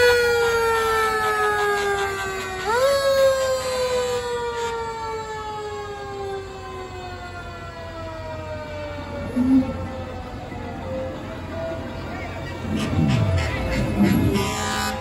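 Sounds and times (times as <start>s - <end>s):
fire engine siren winding down: 0.0s - 11.8s.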